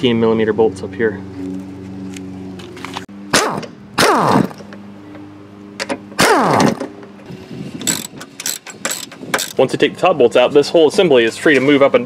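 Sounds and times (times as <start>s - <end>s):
impact wrench bursts: 3.3s - 4.6s, 6.2s - 6.9s, 7.8s - 9.6s.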